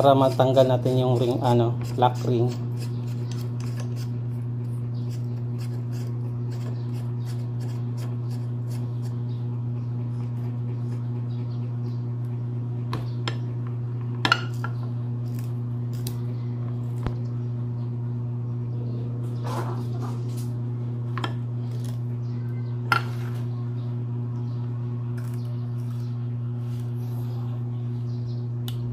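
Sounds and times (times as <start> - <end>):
steady low hum: 0.0 - 28.9
metal tool scraping: 0.2 - 4.2.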